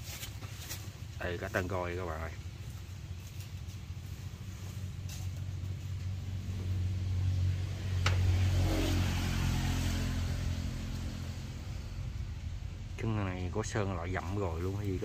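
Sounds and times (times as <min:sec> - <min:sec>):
diesel engine running: 0:03.7 - 0:15.0.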